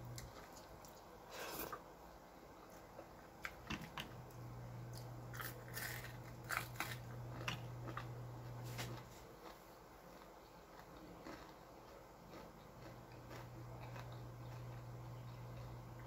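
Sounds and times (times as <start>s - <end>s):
low steady hum: 0.0s - 16.0s
chewing small fish crunches: 4.9s - 15.8s.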